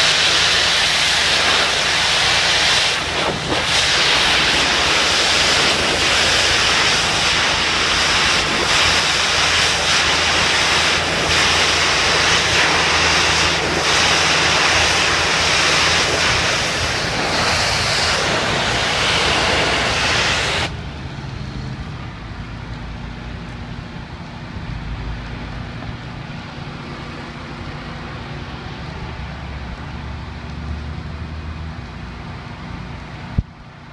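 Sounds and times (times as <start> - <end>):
pressure washer spraying: 0.0 - 20.8
steady low rumble: 0.0 - 33.9.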